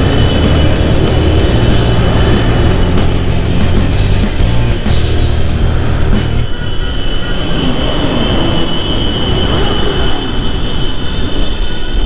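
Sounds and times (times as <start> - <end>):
motorcycle engine rumble: 0.0 - 6.5
thin high whine: 0.0 - 12.0
wind noise: 0.0 - 12.0.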